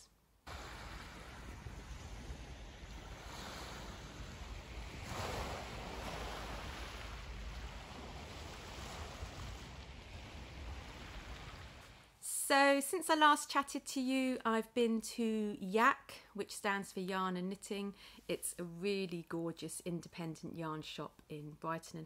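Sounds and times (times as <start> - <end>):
wind rumbling on microphone: 0.5 - 12.0
small waves on pebble beach: 0.5 - 12.1.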